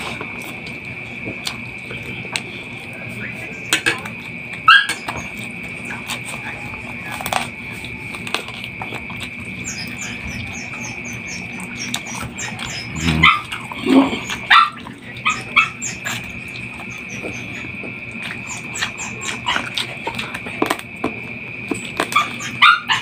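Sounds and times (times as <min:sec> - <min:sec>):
clicks of eating by hand: 0:00.0 - 0:23.0
constant high-pitched tone: 0:00.0 - 0:23.0
dog whimpering and yelping: 0:09.6 - 0:16.3, 0:22.2 - 0:23.0.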